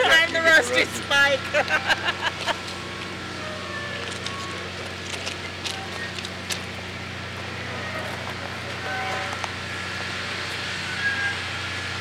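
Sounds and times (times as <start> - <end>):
faint wheel squeals: 3.2 - 6.4, 7.5 - 12.0.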